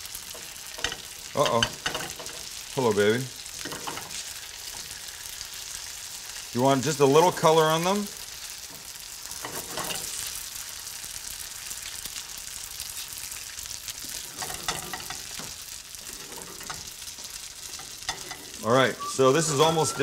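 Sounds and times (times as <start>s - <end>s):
ravioli sizzling in butter: 0.0s - 20.0s
spatula moving food in pan: 3.4s - 6.4s, 8.2s - 10.8s, 12.8s - 20.0s.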